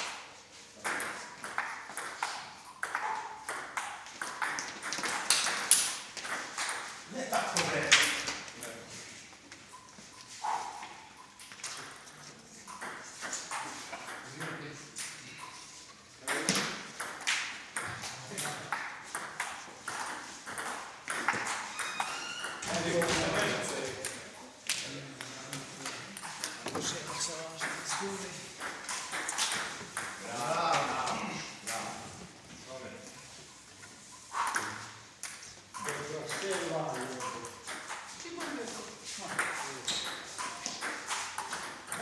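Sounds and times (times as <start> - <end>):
ball bouncing on table: 0.8 - 6.9, 16.3 - 23.3, 26.6 - 27.8
ping pong ball clicking off paddles: 0.8 - 7.0, 12.7 - 15.2, 16.3 - 23.3, 25.2 - 30.2, 39.3 - 42.0.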